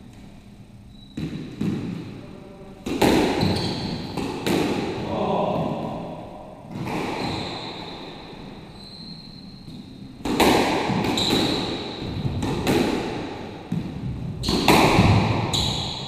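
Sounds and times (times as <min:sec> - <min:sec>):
squash ball hits echoing: 0:01.1 - 0:02.2, 0:02.8 - 0:08.1, 0:10.2 - 0:16.0.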